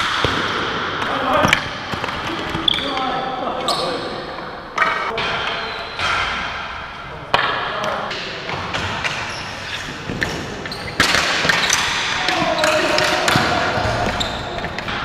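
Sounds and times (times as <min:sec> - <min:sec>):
sticks and ball clacking: 0:07.3 - 0:15.0
players calling out: 0:10.5 - 0:15.0.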